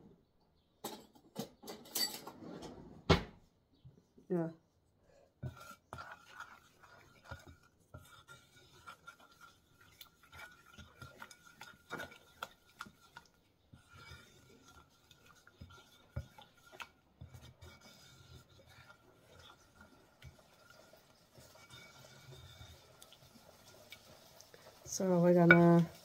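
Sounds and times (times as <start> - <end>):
spoon stirring thick sauce: 5.1 - 26.0
spoon scraping bowl: 5.4 - 26.0.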